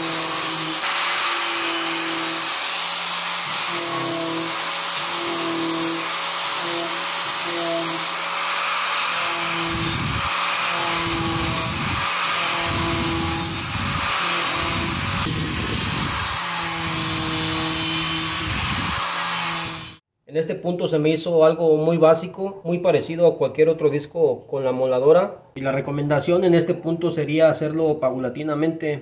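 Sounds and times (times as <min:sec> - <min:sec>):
angle grinder grinding wood: 0:00.0 - 0:20.0.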